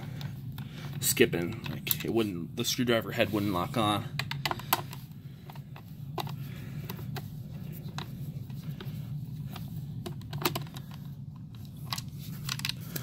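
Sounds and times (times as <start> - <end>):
low steady hum: 0.0 - 13.0
plastic being handled: 3.0 - 13.0.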